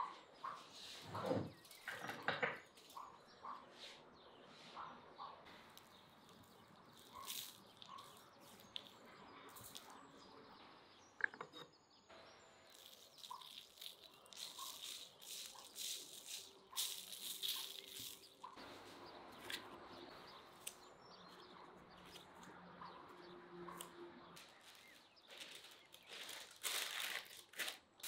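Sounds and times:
bird chirps: 0.0s - 26.3s
grains hissing patter: 5.6s - 9.9s, 12.6s - 18.8s.

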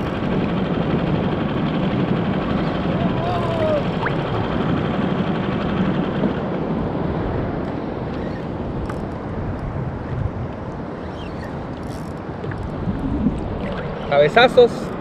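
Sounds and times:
water rushing around hull: 0.0s - 15.0s
wind buffeting microphone: 0.0s - 15.0s.

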